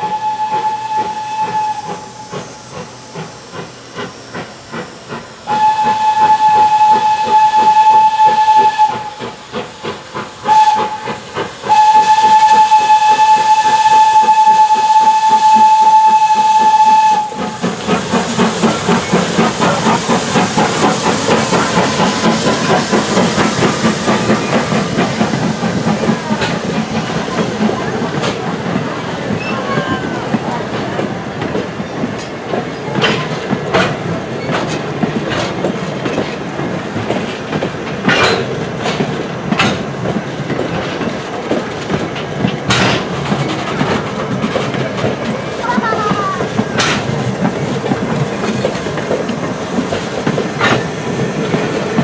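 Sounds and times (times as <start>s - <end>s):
steam locomotive whistle: 0.0s - 2.8s, 5.4s - 9.4s, 10.4s - 17.8s
steam engine chuffing: 0.0s - 52.0s
train passing with rolling cars: 0.0s - 52.0s.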